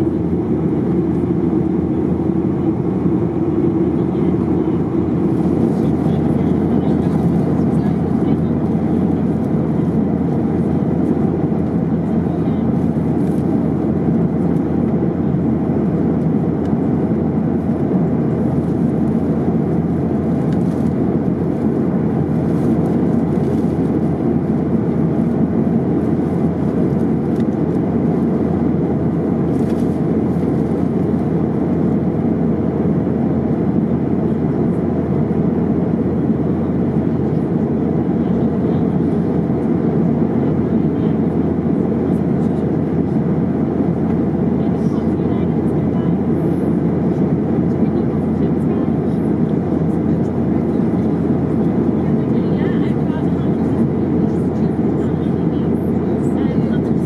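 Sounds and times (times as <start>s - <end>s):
airliner cabin engine roar: 0.0s - 57.0s.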